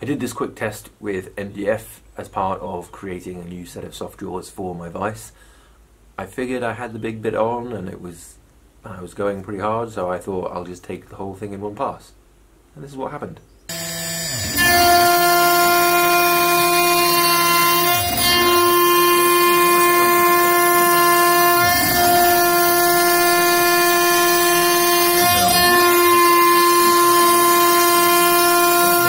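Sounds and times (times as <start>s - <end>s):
router spindle high whine: 13.7s - 29.0s.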